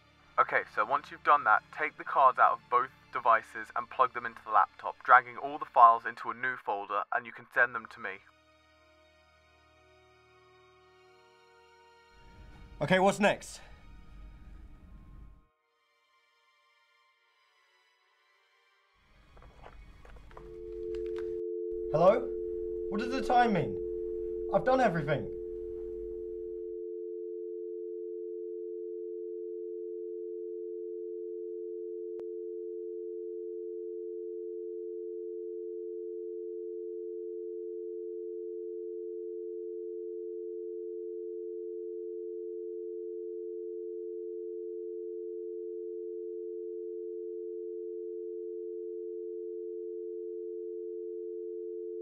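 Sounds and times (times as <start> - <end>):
telephone dial tone: 19.4 - 52.0.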